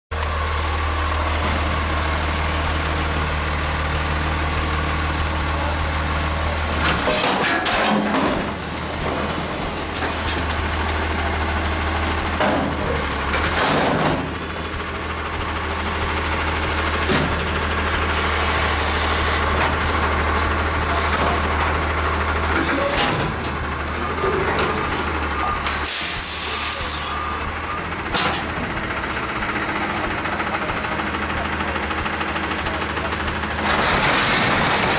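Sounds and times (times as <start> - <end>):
garbage truck engine hum: 0.1 - 34.9
metal clanks and knocks: 6.8 - 10.7, 12.0 - 14.5, 17.0 - 17.6, 22.5 - 25.2, 28.0 - 29.2
hydraulic hiss: 25.7 - 27.1.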